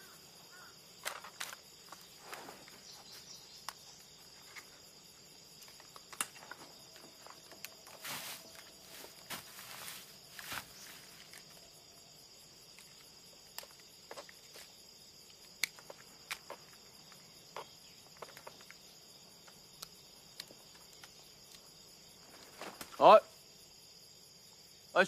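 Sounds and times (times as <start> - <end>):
insects chirring: 0.0 - 25.0
rustling through foliage: 6.4 - 11.7
small clicks and snaps: 15.3 - 16.8.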